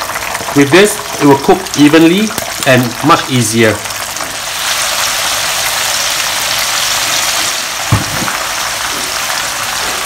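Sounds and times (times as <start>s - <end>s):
beans sizzling in hot oil: 0.0s - 10.0s
low knock: 7.9s - 8.4s.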